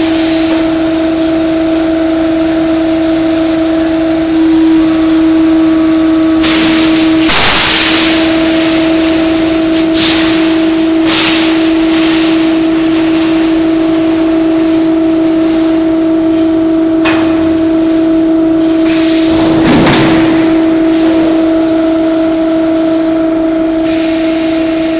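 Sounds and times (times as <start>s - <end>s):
heavy mechanical noise: 0.0s - 24.9s
machine hum: 0.0s - 24.9s.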